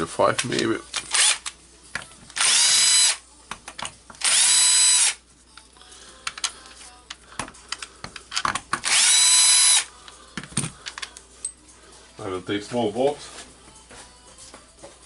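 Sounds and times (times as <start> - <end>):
cordless drill motor whirring: 2.4 - 3.2, 4.2 - 5.2, 8.8 - 9.9.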